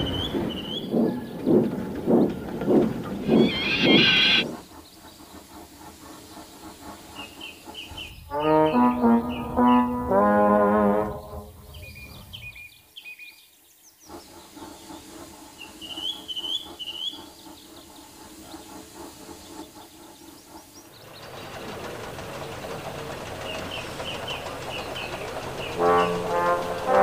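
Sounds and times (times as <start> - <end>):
steady rushing noise: 0.0 - 4.6
birds chirping: 0.0 - 5.4, 7.2 - 10.1, 19.3 - 27.0
steam locomotive chuffing: 0.0 - 27.0.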